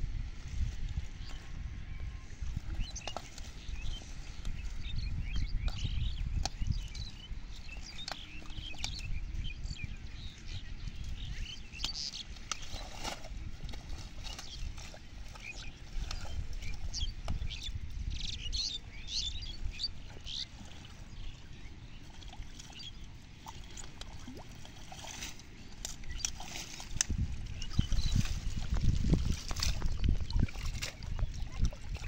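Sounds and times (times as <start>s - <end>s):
steady low rumble: 0.0s - 32.0s
small birds chirping: 2.7s - 12.9s, 14.2s - 24.4s, 25.2s - 32.0s
plants pulled apart in water: 23.6s - 32.0s.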